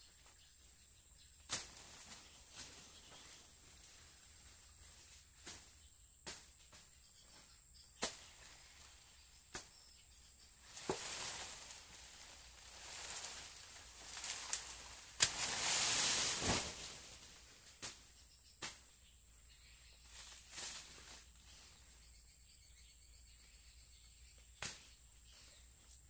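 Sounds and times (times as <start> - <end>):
dry leaves rustling: 10.6 - 17.9, 20.0 - 21.6.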